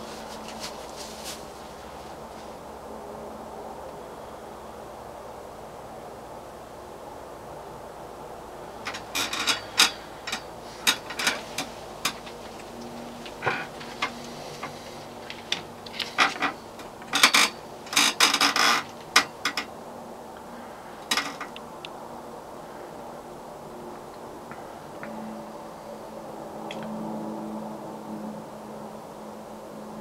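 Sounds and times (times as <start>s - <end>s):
clicks and rustles: 0.0s - 1.6s, 8.9s - 19.7s, 21.0s - 22.0s.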